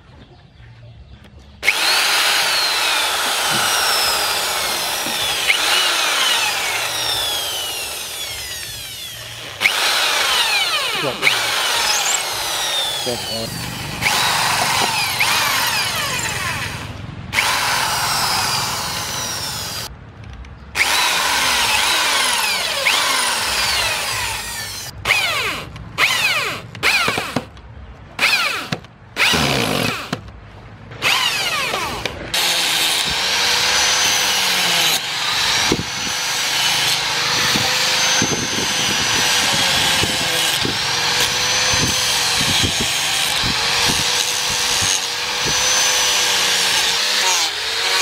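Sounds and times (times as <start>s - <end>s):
electric drill boring wood: 1.6s - 19.9s, 20.8s - 27.4s, 28.2s - 30.2s, 31.0s - 48.0s
angle grinder sanding wood: 1.7s - 16.8s, 32.4s - 48.0s.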